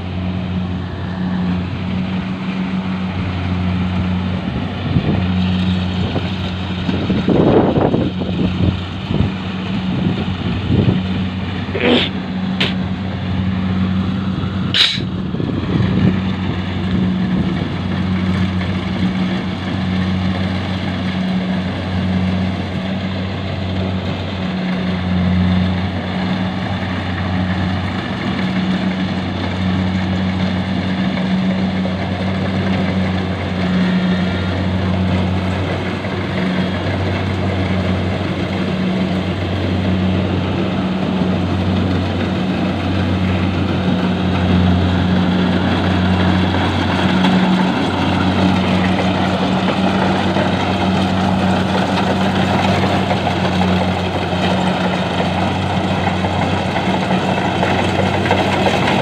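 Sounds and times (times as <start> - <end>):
combine harvester engine running: 0.0 - 59.0
machine clatter: 45.6 - 59.0.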